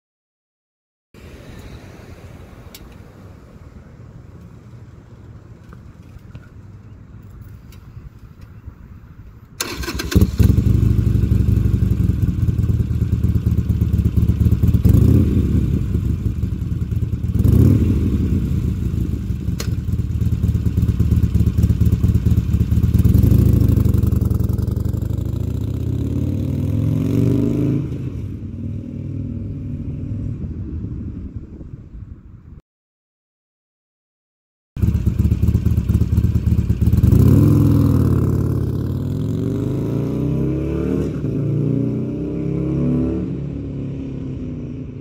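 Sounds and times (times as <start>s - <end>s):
motorcycle engine starting and revving: 9.6s - 30.3s, 34.8s - 45.0s.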